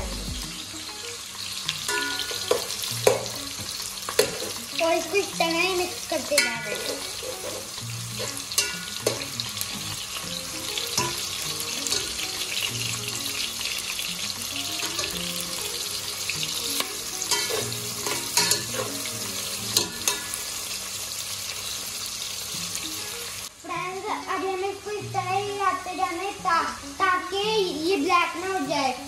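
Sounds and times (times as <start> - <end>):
onions sizzling in oil: 0.0 - 29.0
metal spatula scraping pot: 4.1 - 4.7, 6.3 - 9.4, 17.3 - 20.4.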